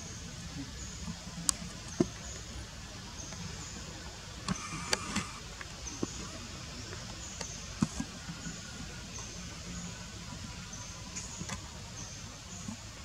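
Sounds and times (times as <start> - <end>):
steady background hiss: 0.0 - 13.0.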